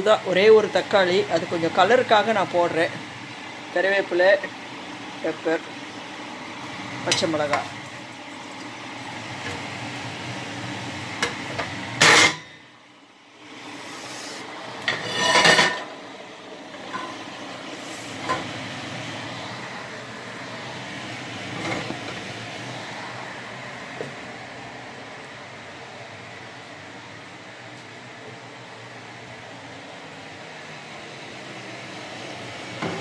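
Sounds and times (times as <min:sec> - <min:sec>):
kitchen exhaust fan whirring: 0:00.0 - 0:33.0
kitchenware clattering: 0:14.9 - 0:15.9.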